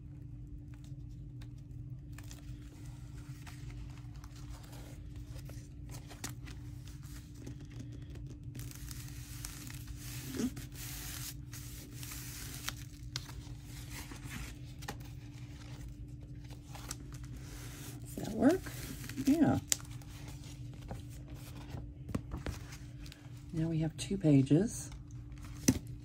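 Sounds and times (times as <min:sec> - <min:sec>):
steady low hum: 0:00.0 - 0:26.0
paper rustling and tearing: 0:02.0 - 0:21.8.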